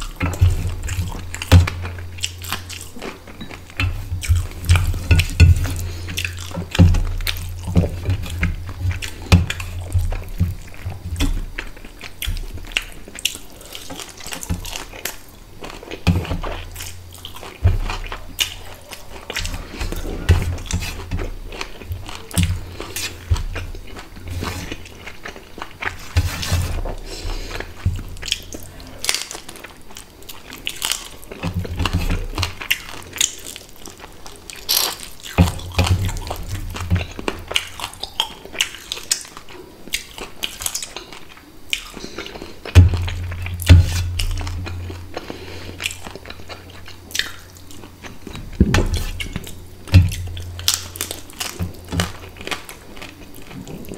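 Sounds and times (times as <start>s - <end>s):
bones crunching: 0.0s - 53.9s
wet chewing and lip-smacking: 0.0s - 53.9s.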